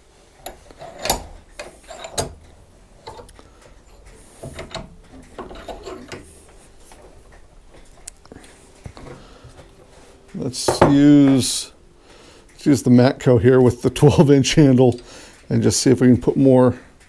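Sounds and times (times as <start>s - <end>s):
metal clanking in bench vise: 0.4s - 6.3s.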